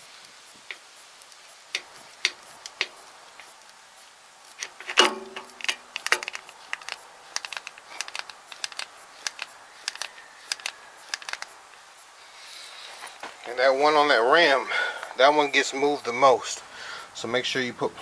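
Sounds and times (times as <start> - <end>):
grease gun lever clicking: 4.6 - 11.5.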